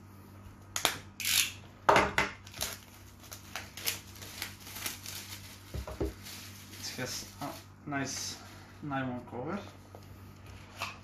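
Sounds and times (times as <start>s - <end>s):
utility knife cutting plastic wrap: 2.4s - 5.4s
plastic wrap rustling: 2.4s - 11.0s.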